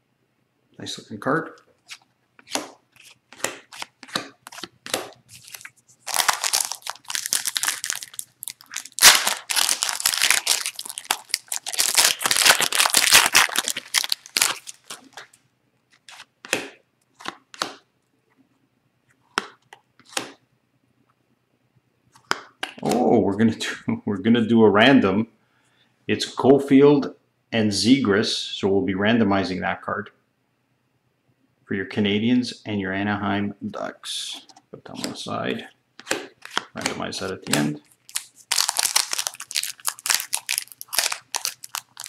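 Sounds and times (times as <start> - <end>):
foil wrapper rustling and tearing: 5.3 - 15.4, 37.4 - 42.0.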